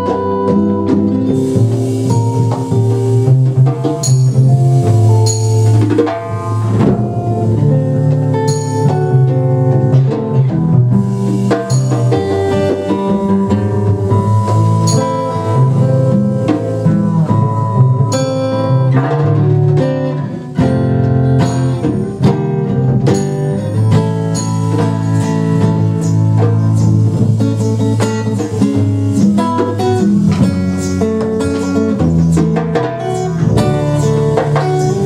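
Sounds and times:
acoustic guitar notes: 0.0 - 35.0
double bass line: 0.0 - 35.0
drum kit keeping time: 0.0 - 35.0
cymbal strokes: 1.3 - 9.3, 10.9 - 18.9, 21.2 - 32.3.

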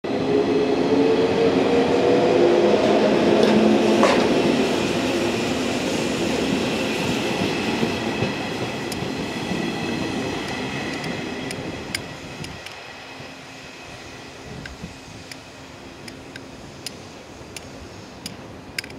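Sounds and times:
wheels clicking over rail joints: 14.6 - 18.9.

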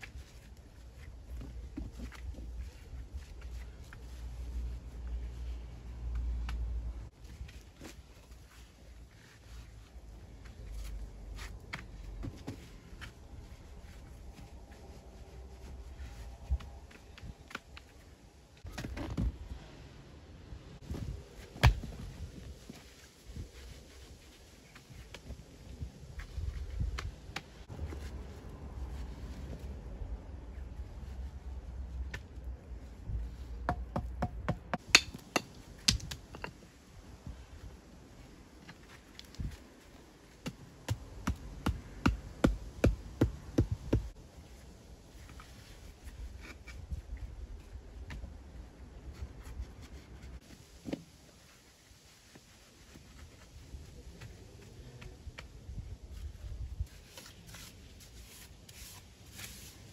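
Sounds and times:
stones knocking: 34.8 - 36.6.

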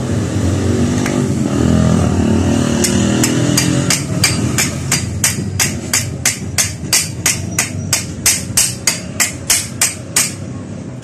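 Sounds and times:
hammer striking steel punch: 2.8 - 10.4.

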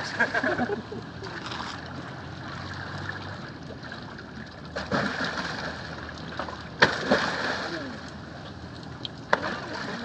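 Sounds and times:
water lapping against boat hull: 0.1 - 10.0
fish striking with splash: 4.8 - 5.7, 6.4 - 7.9.

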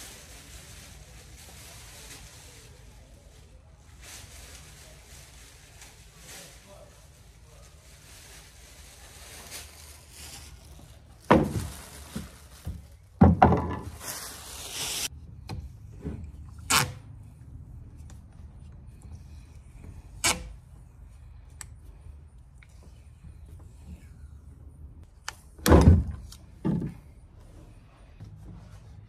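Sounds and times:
tape tearing: 13.9 - 15.1, 16.7 - 17.0, 20.2 - 20.6.

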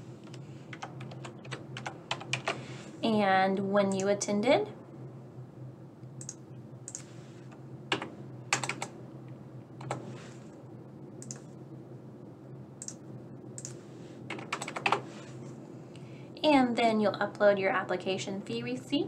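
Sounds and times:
low steady hum: 0.0 - 19.0
keyboard keystrokes: 6.2 - 7.1, 7.9 - 8.9, 11.2 - 11.5, 13.6 - 15.0
mouse clicks: 11.2 - 11.5.

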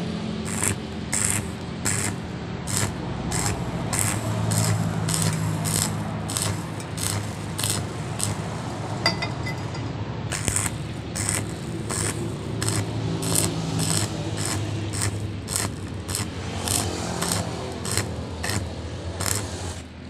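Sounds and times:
steady low hum: 0.0 - 20.0
welding arc crackling and hissing: 0.4 - 20.0.

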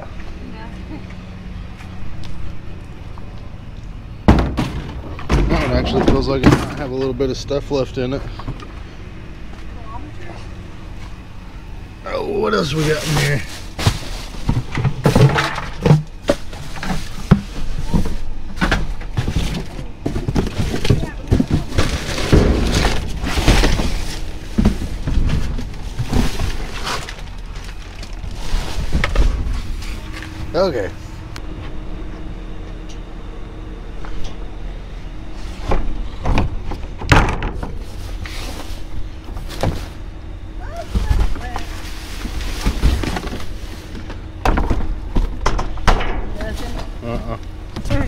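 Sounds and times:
low hum: 0.0 - 48.0
knocks and clatters in dumpster: 4.2 - 7.0, 12.7 - 29.8, 35.6 - 38.0, 40.6 - 47.0, 47.7 - 48.0
cardboard and plastic rustling: 12.5 - 30.9, 35.4 - 47.0.

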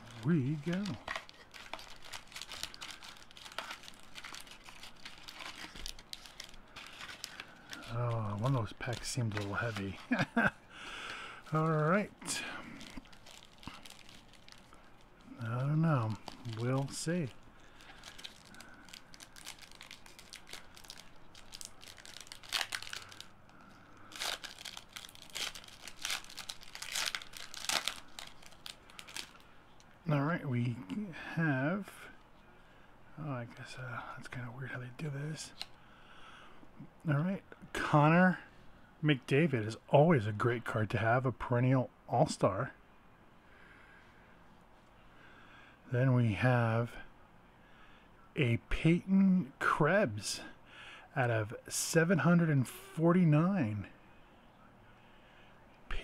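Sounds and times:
card packs crinkling and rustling: 0.0 - 10.5, 11.4 - 29.9.

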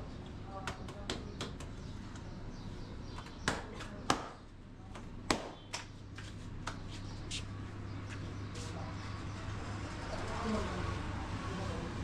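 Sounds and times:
faint steady background hum: 0.0 - 12.0
dough slapped by hand: 0.6 - 1.8, 3.4 - 6.0.

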